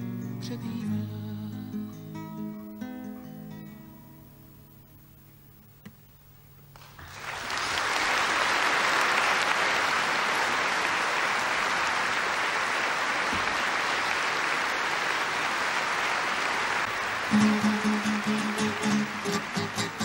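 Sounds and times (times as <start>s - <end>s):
audience applauding: 6.8s - 20.0s
guitar note: 17.3s - 20.0s.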